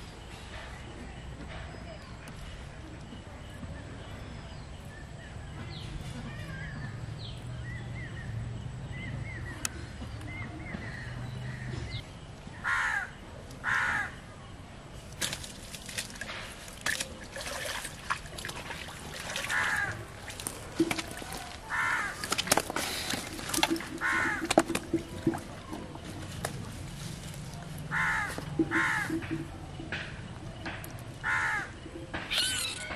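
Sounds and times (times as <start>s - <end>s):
crow cawing: 12.6s - 14.1s, 21.7s - 22.2s, 24.0s - 24.5s, 27.9s - 29.2s, 31.2s - 31.7s.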